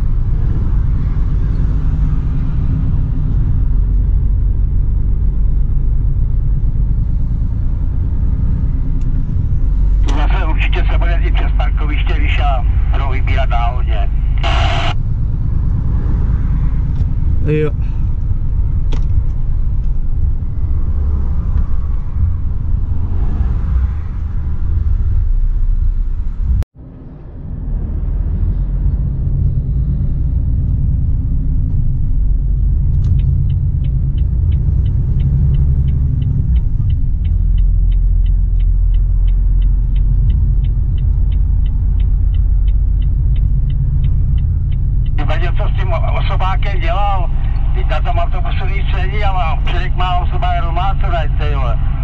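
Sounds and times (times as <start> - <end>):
truck engine rumbling in cab: 28.5 - 52.0
light regular ticking: 32.0 - 51.9.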